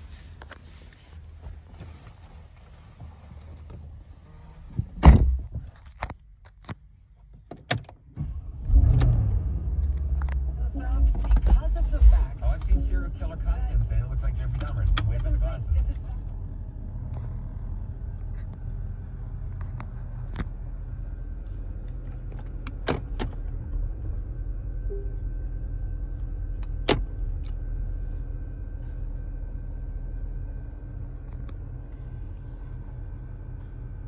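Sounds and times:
car engine idling: 0:08.0 - 0:34.0.

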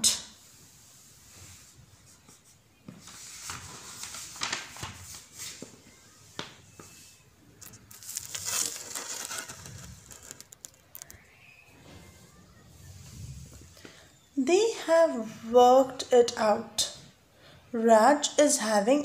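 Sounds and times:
paper rustling and crinkling: 0:01.4 - 0:14.0.

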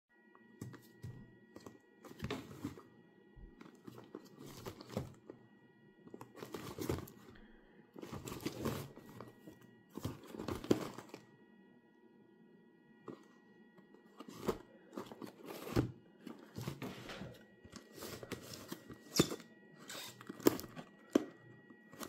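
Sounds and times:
cardboard box rustling: 0:00.6 - 0:02.9, 0:03.5 - 0:05.4, 0:06.1 - 0:07.3, 0:08.0 - 0:11.3, 0:14.0 - 0:22.0.

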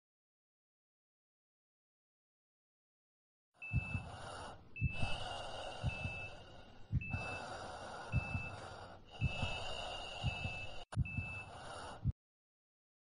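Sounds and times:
low double thumps: 0:03.7 - 0:07.4, 0:08.1 - 0:08.6, 0:09.2 - 0:12.1.

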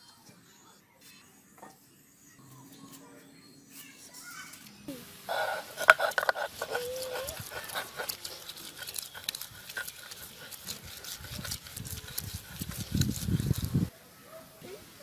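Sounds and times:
grinding stone knocks and crunches: 0:05.3 - 0:13.9.

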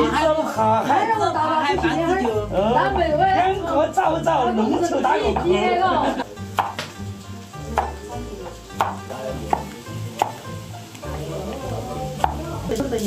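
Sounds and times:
cleaver chopping on wooden block: 0:08.8 - 0:10.4.

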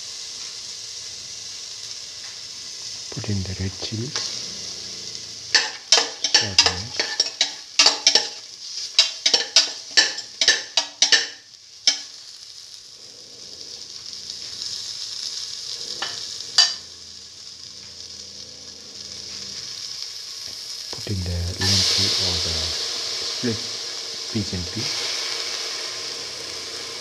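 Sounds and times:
food sizzling in oil: 0:00.0 - 0:27.0
spatula scraping a pan: 0:05.5 - 0:12.2, 0:16.0 - 0:16.8.

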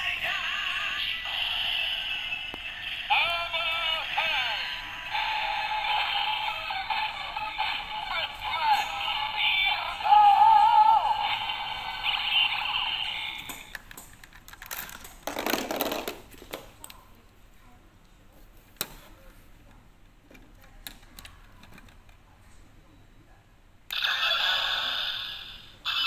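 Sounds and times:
toy belt electronic sound effect: 0:00.3 - 0:13.7, 0:23.9 - 0:26.0.

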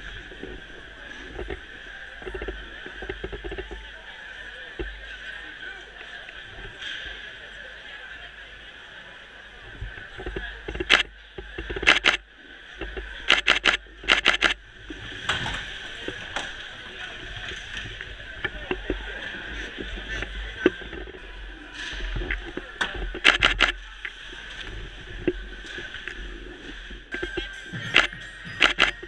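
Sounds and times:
arena crowd din: 0:00.0 - 0:29.0
camera shutter bursts: 0:11.8 - 0:12.2, 0:13.3 - 0:14.6, 0:23.2 - 0:23.8, 0:28.0 - 0:29.0.

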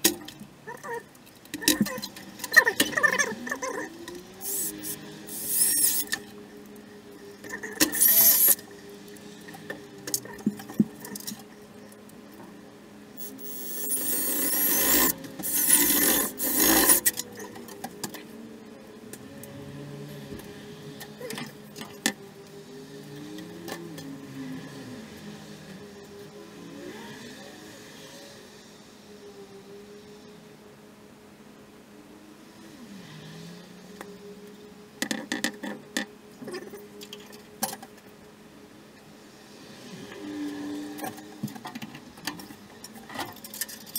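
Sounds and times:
drill scraping metal with squeals: 0:04.4 - 0:06.2, 0:07.9 - 0:08.6, 0:13.2 - 0:17.1.

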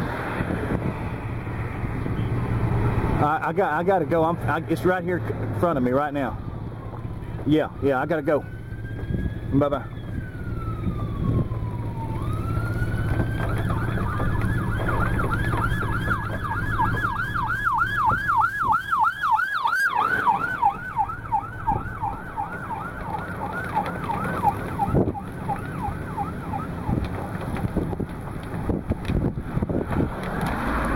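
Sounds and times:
emergency siren wailing and yelping: 0:06.2 - 0:28.8.

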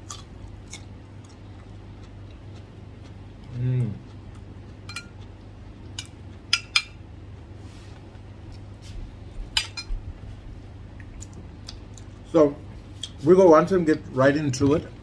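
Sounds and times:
low steady hum: 0:00.0 - 0:15.0
metal spoon clinking on glass: 0:04.9 - 0:05.1.

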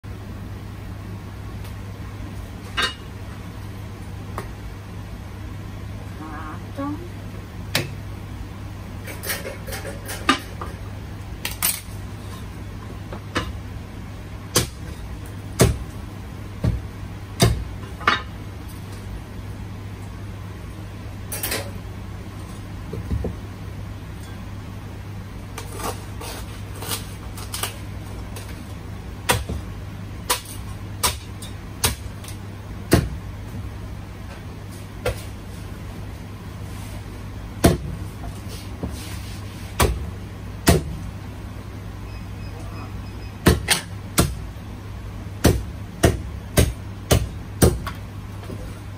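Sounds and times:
steady low hum: 0:00.0 - 0:48.9
utensils and dishes clinking: 0:09.0 - 0:10.8.

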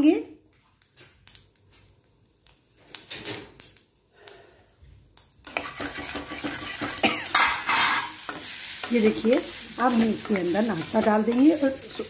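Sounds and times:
spices popping in hot oil: 0:00.8 - 0:04.4, 0:05.0 - 0:12.0
oil sizzling: 0:05.1 - 0:12.0.

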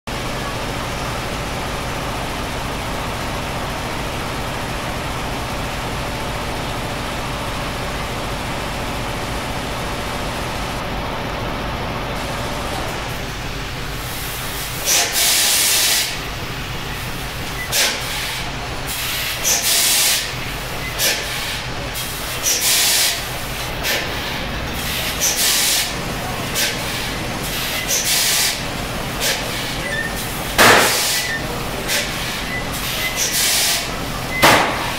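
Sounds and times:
air hissing blasts: 0:14.0 - 0:16.4, 0:17.7 - 0:34.9.

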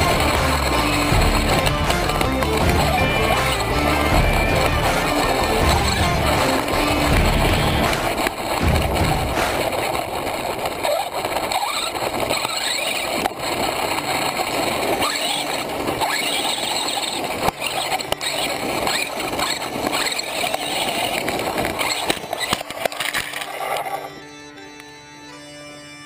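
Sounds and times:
electric motor whine: 0:00.0 - 0:09.5, 0:12.2 - 0:25.6
toy truck tumbling knocks: 0:00.0 - 0:13.4.

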